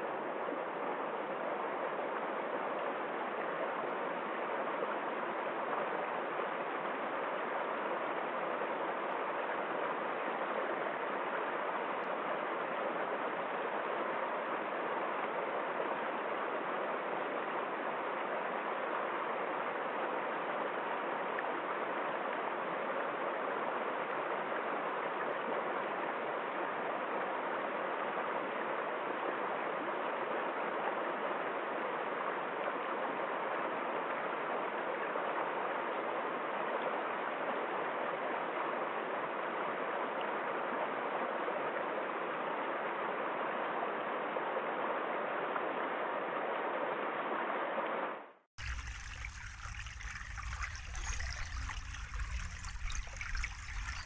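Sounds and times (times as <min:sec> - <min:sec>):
stream flowing over stones: 0:48.6 - 0:54.0.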